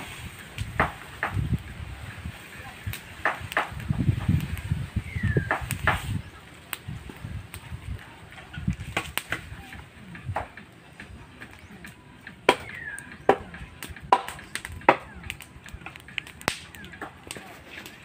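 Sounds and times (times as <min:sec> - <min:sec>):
axe chopping firewood: 0:00.5 - 0:01.6, 0:02.9 - 0:04.6, 0:05.2 - 0:06.8, 0:08.7 - 0:10.7, 0:11.4 - 0:18.0.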